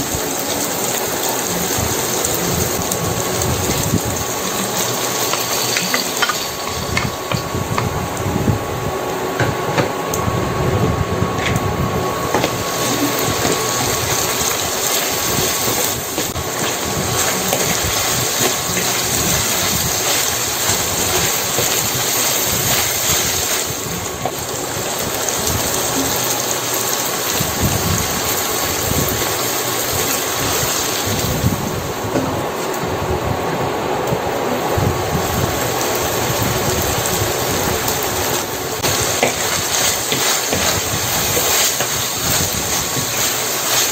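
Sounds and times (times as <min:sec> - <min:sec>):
oil sizzling in a pan: 0:00.0 - 0:10.2, 0:11.4 - 0:32.7, 0:35.0 - 0:43.9
wooden spoon scraping and tapping: 0:04.7 - 0:07.9, 0:38.8 - 0:43.9.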